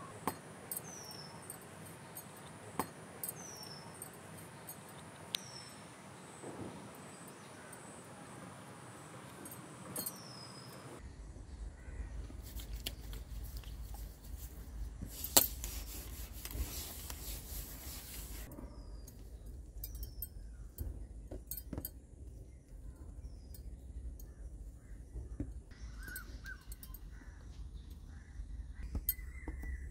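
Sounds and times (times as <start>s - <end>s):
hands rubbing and pressing dough: 12.3s - 18.5s
small clicks and scraping: 12.3s - 24.3s
falling bird chirps: 22.5s - 29.9s.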